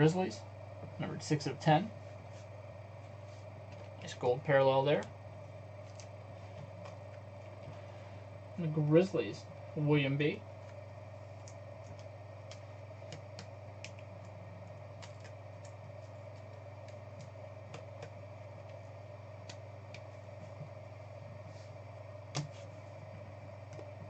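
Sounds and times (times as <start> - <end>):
low electrical hum: 0.0 - 24.0
faint clicks and ticks: 10.6 - 20.9.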